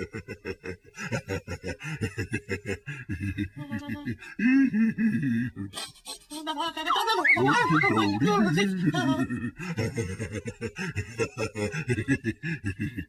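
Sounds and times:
cartoon seal laughing: 0:06.8 - 0:08.4.

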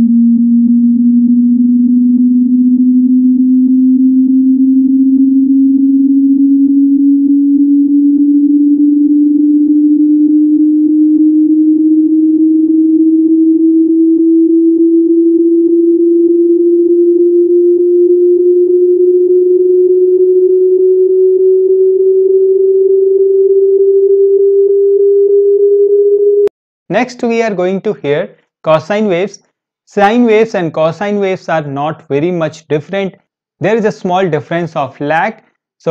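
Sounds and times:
sine tone rising in pitch: 0:00.0 - 0:26.5.

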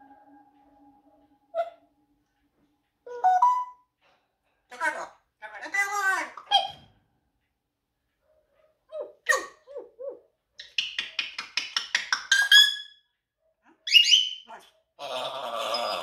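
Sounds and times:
parrot whistling: 0:13.9 - 0:14.4.

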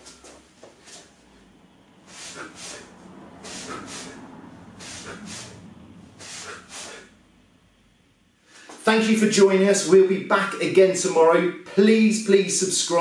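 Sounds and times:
sharp hissing nasal exhalations: 0:02.0 - 0:07.2.

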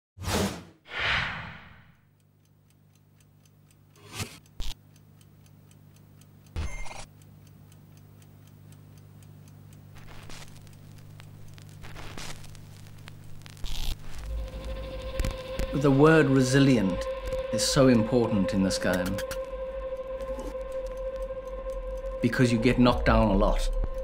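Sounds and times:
low drone: 0:14.0 - 0:24.0
clock-like ticking: 0:14.5 - 0:24.0.

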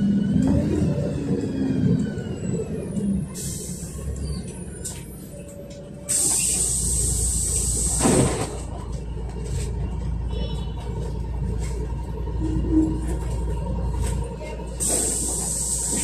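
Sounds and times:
bus engine and road rumble: 0:00.0 - 0:16.0
compressed air hiss and puff: 0:06.1 - 0:08.4, 0:14.8 - 0:16.0.

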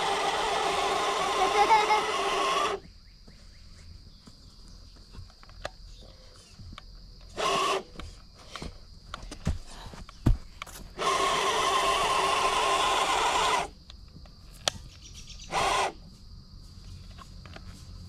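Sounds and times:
rc truck electric motor running: 0:00.0 - 0:02.8, 0:07.3 - 0:07.9, 0:11.0 - 0:13.8, 0:15.5 - 0:16.0
dull thumps: 0:07.9 - 0:11.0.

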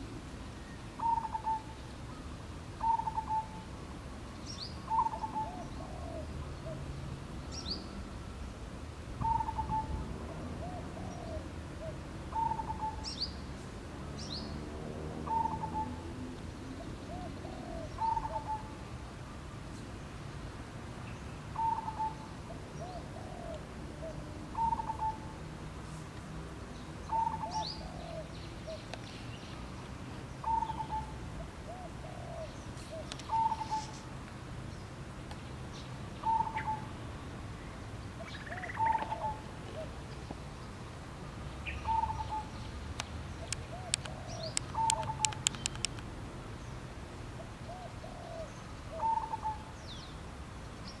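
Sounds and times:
sharp clicks: 0:43.0 - 0:46.1
bird call phrase: 0:43.7 - 0:45.6.

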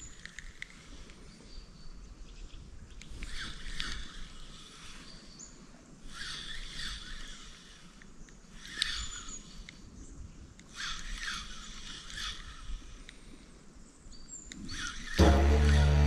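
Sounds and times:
spinning reel cranking: 0:06.1 - 0:08.0, 0:08.6 - 0:09.5, 0:10.7 - 0:13.0, 0:14.7 - 0:16.0.

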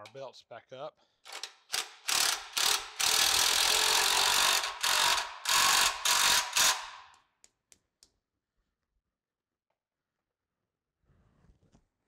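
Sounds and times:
impact wrench hammering: 0:01.3 - 0:07.2.

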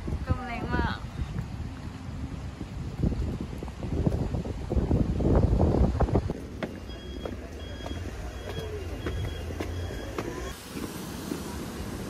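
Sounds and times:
road traffic hiss: 0:00.0 - 0:12.0
traffic rumble: 0:00.0 - 0:12.0
footsteps on stairs: 0:06.3 - 0:11.5.

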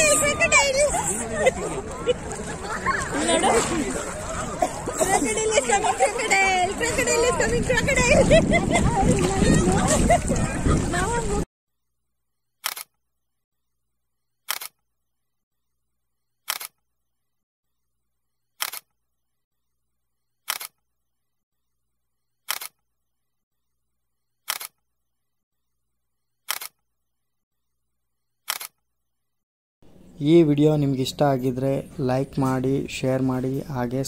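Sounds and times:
camera shutter click-clack: 0:12.6 - 0:12.9, 0:14.5 - 0:14.8, 0:16.5 - 0:16.8, 0:18.6 - 0:18.9, 0:20.5 - 0:20.8, 0:22.5 - 0:22.8, 0:24.5 - 0:24.8, 0:26.5 - 0:26.8, 0:28.5 - 0:28.8.

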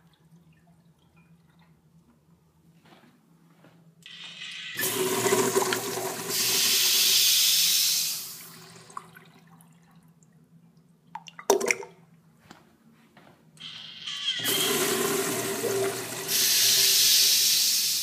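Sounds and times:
toilet flushing: 0:04.1 - 0:10.0, 0:14.3 - 0:18.0.

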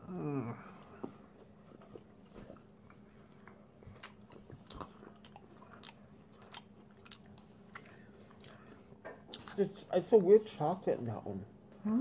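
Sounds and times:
mouth chewing sounds: 0:00.5 - 0:09.9.

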